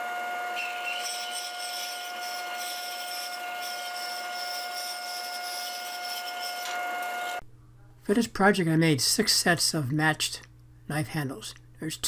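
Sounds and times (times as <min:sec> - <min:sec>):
band saw cutting board: 0:00.0 - 0:07.4.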